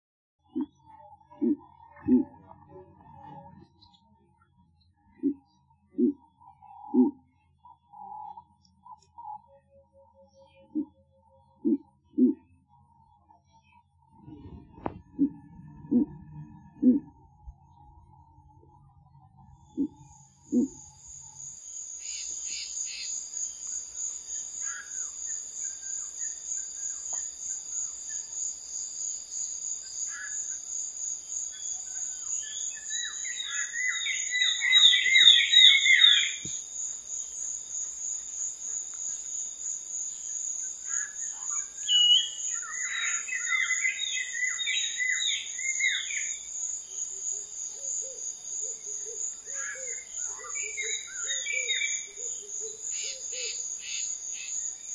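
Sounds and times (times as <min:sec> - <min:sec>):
insects buzzing: 0:20.5 - 0:54.9
bird chirping: 0:31.4 - 0:54.9.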